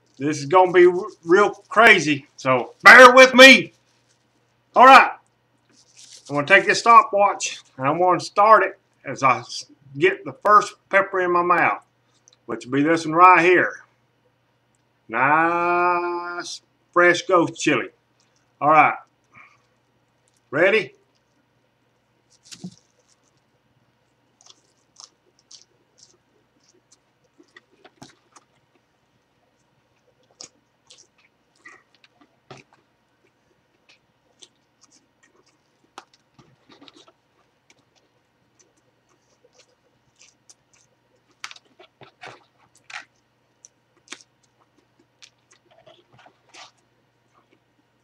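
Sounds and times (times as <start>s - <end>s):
chili peppers crunching: 0.0s - 4.9s, 5.6s - 7.9s, 18.2s - 21.5s, 22.2s - 48.0s.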